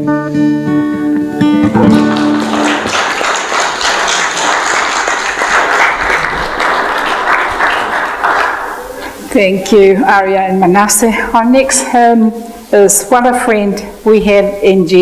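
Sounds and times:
acoustic guitar chord ringing: 0.0s - 2.6s
congregation applauding: 1.7s - 9.3s.

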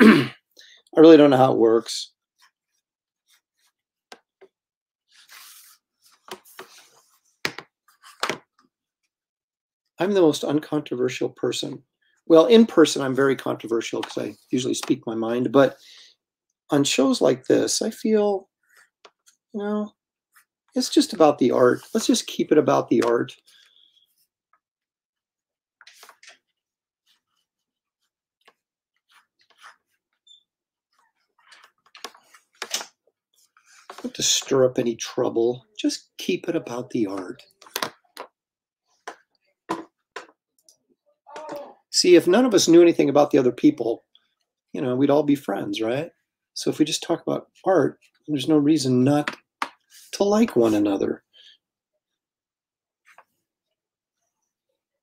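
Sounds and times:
hand rubbing across paper: 5.2s - 5.8s
paper rustling: 5.2s - 8.4s, 25.8s - 30.2s, 30.9s - 34.3s
marker pen scratching on paper: 29.0s - 30.0s.

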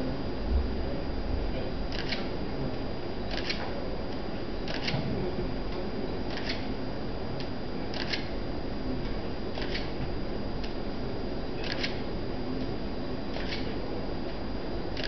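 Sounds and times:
faint high whine: 0.0s - 15.0s
camera autofocus whirring: 1.9s - 2.5s, 3.3s - 5.2s, 6.2s - 6.8s, 7.4s - 10.9s, 11.6s - 15.0s.

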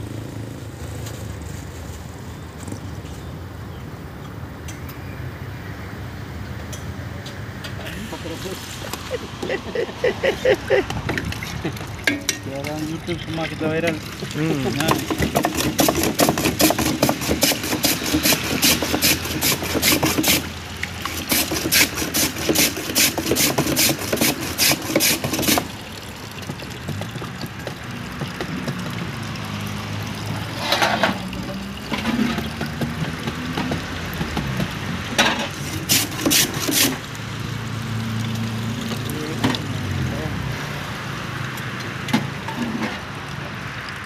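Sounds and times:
ice scraping on blade: 14.8s - 25.7s, 35.6s - 37.0s.

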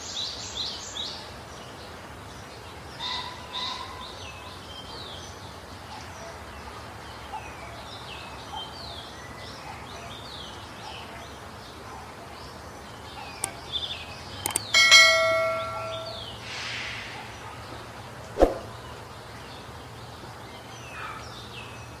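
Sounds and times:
small birds chirping: 0.0s - 22.0s
mouse click sound effect: 14.4s - 14.7s
sharp click: 14.4s - 16.2s
bell ding: 14.6s - 16.3s.

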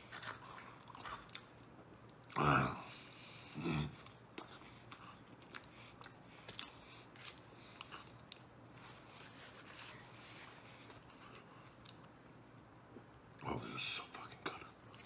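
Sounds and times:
man chewing with mouth open: 0.0s - 9.3s, 10.1s - 12.3s, 14.4s - 15.0s.

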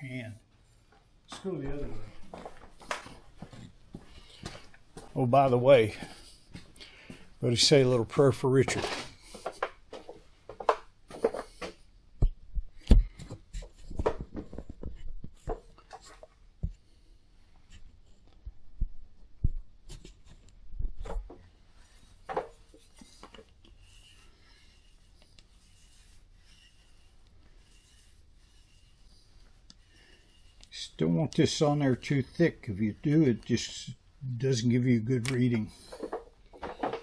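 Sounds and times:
knocks and clatter on bench: 8.9s - 12.4s, 13.0s - 16.8s, 22.2s - 23.5s, 35.9s - 37.0s
foam roller swishing on stone: 21.0s - 33.8s.

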